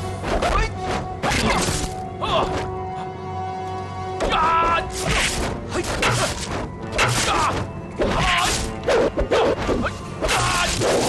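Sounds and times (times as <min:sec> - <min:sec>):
dramatic background music: 0:00.0 - 0:11.0
fighters shouting: 0:07.0 - 0:08.7, 0:10.2 - 0:11.0.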